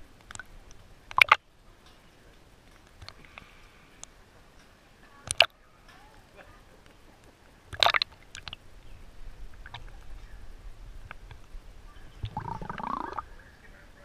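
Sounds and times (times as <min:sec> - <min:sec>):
water splash: 0:01.1 - 0:01.4, 0:07.7 - 0:08.6
water sloshing and gurgling: 0:12.2 - 0:13.3.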